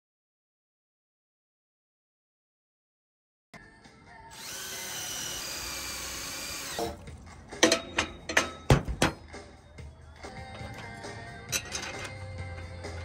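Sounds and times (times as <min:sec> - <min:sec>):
cordless drill boring into metal: 0:04.3 - 0:07.0
knocks and clanks on metal rack: 0:07.6 - 0:09.4.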